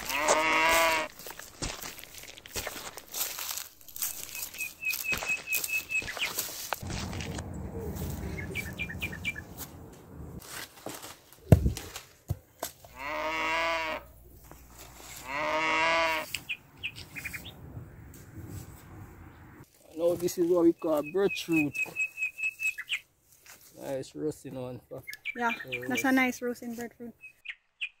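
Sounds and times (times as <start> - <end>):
livestock calling: 0.0 - 1.3, 12.9 - 17.5
heavy thud of fruit hitting ground: 10.8 - 12.4.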